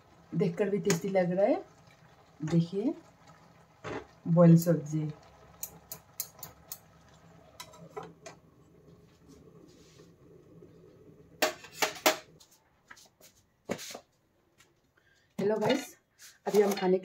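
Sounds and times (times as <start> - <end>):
steel pot and lid clinking: 5.5 - 7.0.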